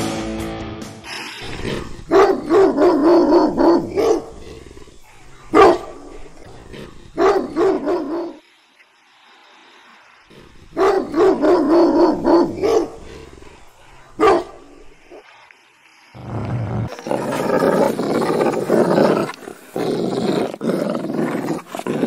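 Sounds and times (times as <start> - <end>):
large dog barking and growling: 1.4 - 8.4, 10.3 - 15.2, 16.4 - 22.0.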